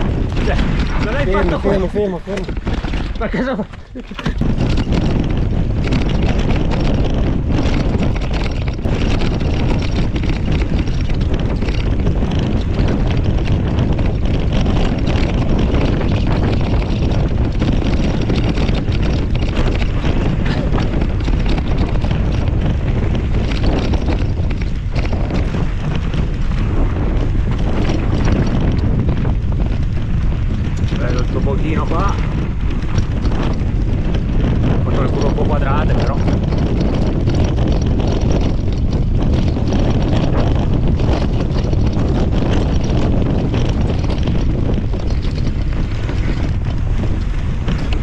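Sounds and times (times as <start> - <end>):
bike knocks and rattles: 0.0 - 48.0
bike tyre noise: 0.0 - 48.0
wind rushing over microphone: 0.0 - 48.0.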